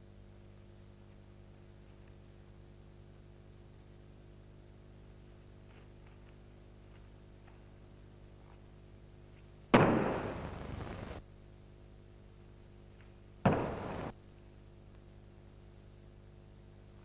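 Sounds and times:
steady low hum: 0.0s - 17.0s
sharp noisy bursts: 9.8s - 11.2s, 13.5s - 14.2s.

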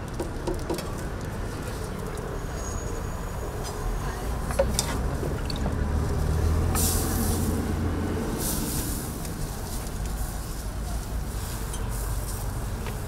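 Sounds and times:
vehicle rumble: 0.0s - 13.0s
air brake hisses: 6.8s - 7.5s.

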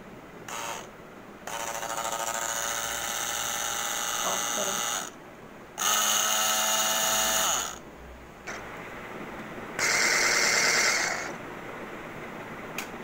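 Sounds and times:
hand blender motor whine: 0.5s - 0.9s, 1.5s - 5.1s, 5.8s - 7.8s, 9.8s - 11.4s.

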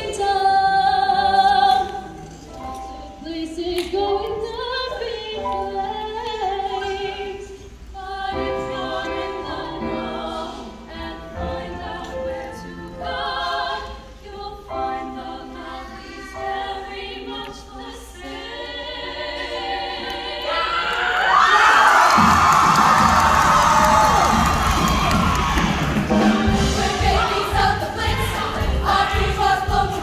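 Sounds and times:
women singing in harmony: 0.0s - 21.4s, 23.8s - 30.0s
audience cheering: 20.5s - 27.4s.

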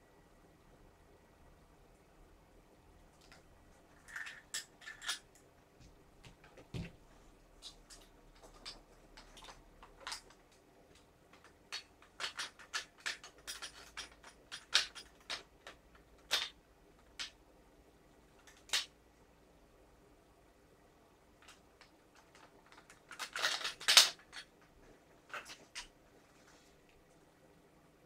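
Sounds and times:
small gun parts clicking: 4.0s - 5.2s, 7.6s - 17.4s, 21.4s - 24.7s.

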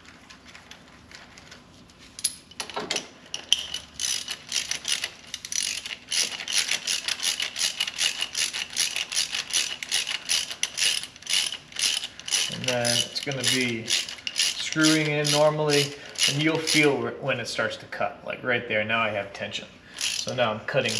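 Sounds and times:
ratchet wrench clicking: 3.4s - 16.9s, 20.0s - 20.9s.

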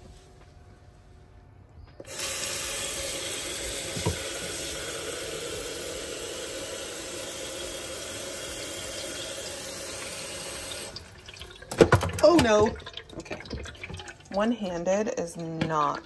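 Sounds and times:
faucet water running into sink: 2.0s - 14.7s.

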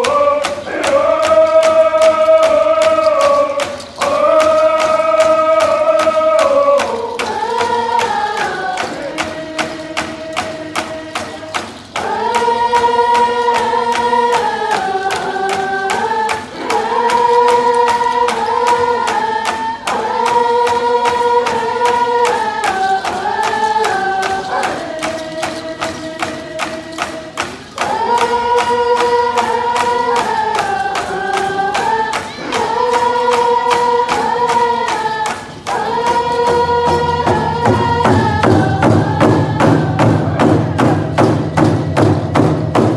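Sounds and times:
frame drums beating: 0.0s - 42.9s
many voices singing in unison: 0.0s - 42.9s.

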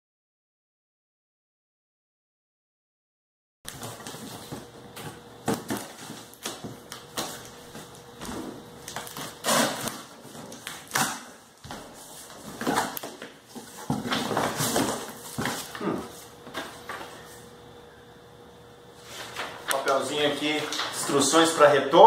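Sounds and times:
cardboard flaps scraping open: 3.7s - 15.8s
packing tape being slit: 8.8s - 13.3s.

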